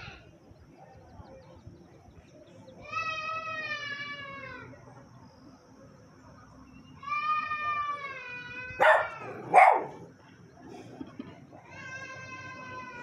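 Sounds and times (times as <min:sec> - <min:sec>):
dog barking: 0:08.8 - 0:10.1
dog whining: 0:08.8 - 0:10.1.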